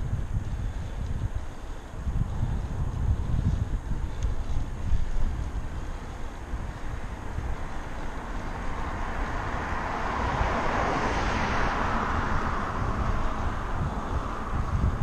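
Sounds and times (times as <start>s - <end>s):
car passing: 0.0s - 15.0s
wind rumble on microphone: 0.0s - 15.0s.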